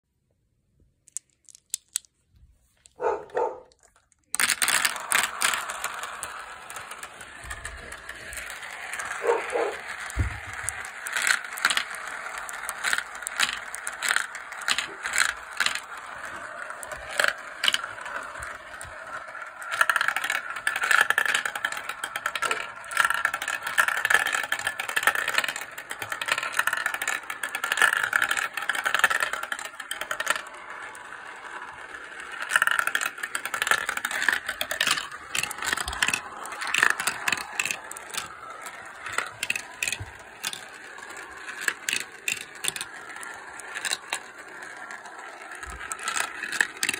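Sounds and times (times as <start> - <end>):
sharp clicks of marbles: 1.0 - 2.2
marbles rolling in plastic run: 1.1 - 2.1, 2.8 - 46.9
marbles whirring in funnel: 2.8 - 46.9.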